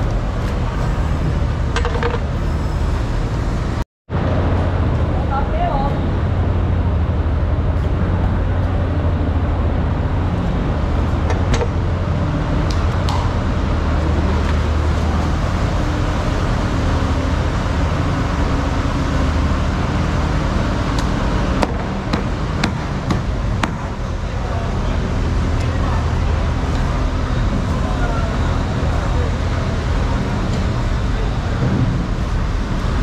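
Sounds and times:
low mechanical drone: 0:00.0 - 0:33.0
sharp clicks and knocks: 0:01.7 - 0:02.3, 0:11.2 - 0:11.8.

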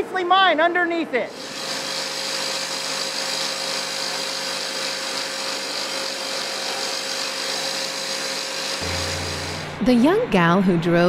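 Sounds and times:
rock drill drilling: 0:01.3 - 0:09.7.

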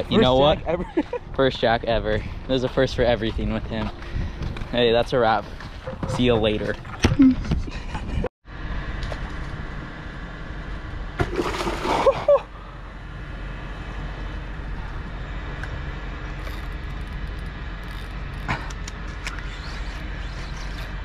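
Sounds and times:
steady outdoor rumble: 0:00.0 - 0:21.0
water sloshing: 0:11.2 - 0:12.4
water splashing: 0:11.2 - 0:12.4.

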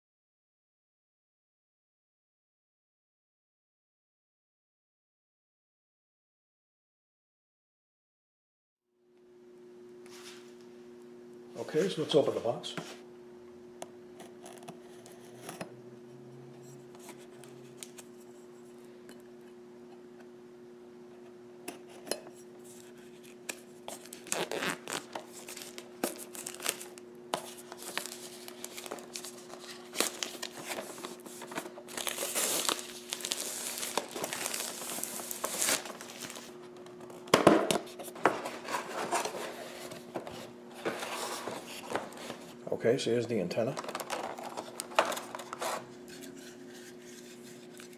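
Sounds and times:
steady low hum: 0:09.0 - 0:47.9
plastic shrink-wrap crinkling: 0:22.8 - 0:37.3, 0:43.6 - 0:45.9.

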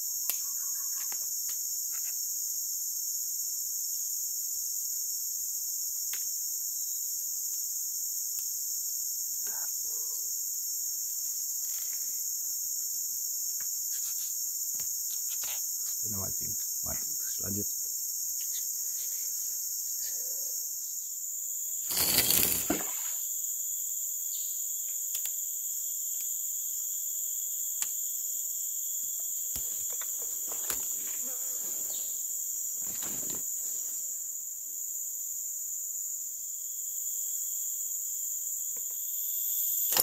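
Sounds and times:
chorus of forest insects: 0:00.0 - 0:40.0
loud rustle: 0:21.9 - 0:23.0.

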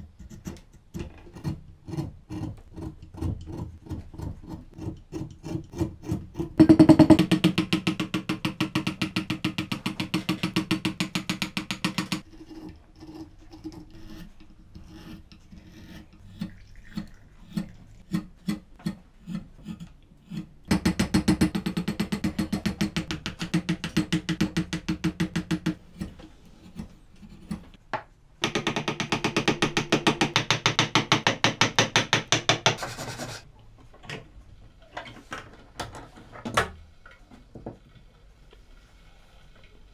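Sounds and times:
rasping strokes on wood: 0:12.2 - 0:20.6
wood rubbed on sanding block: 0:32.7 - 0:33.5.

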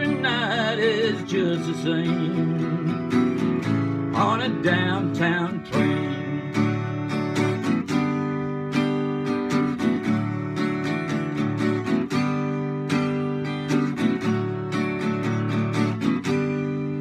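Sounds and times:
acoustic guitar strumming: 0:00.0 - 0:17.0.

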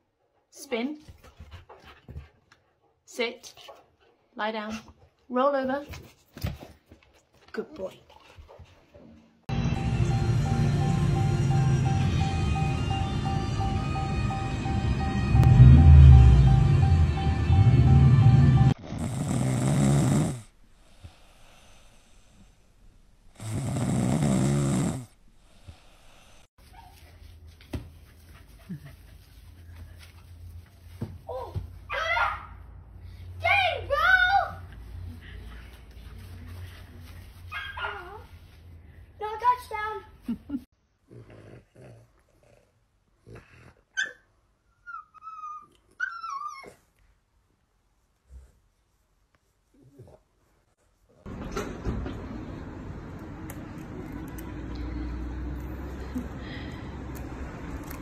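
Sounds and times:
music: 0:09.5 - 0:18.8
dog snoring: 0:18.8 - 0:22.4, 0:23.3 - 0:26.4
dog yelping: 0:37.5 - 0:38.0
dog whining: 0:43.9 - 0:46.9.

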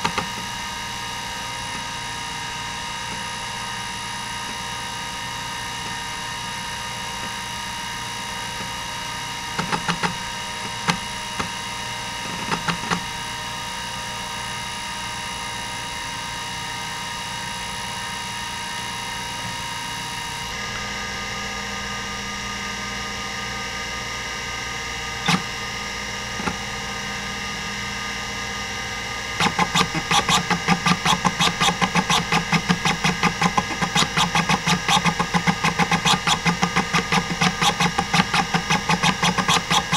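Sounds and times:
hard drive seek clicks: 0:00.0 - 0:00.6, 0:08.5 - 0:11.6, 0:12.2 - 0:13.2, 0:25.2 - 0:26.8, 0:29.3 - 0:39.9
hard drive whine: 0:00.0 - 0:39.9.

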